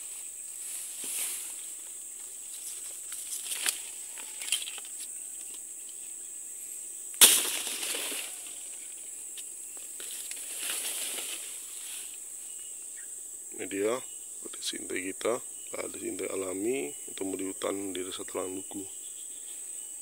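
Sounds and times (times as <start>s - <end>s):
leaves rustling: 0.0s - 6.1s, 7.2s - 12.9s
high insect drone: 0.0s - 20.0s
sharp crack: 7.2s - 8.8s.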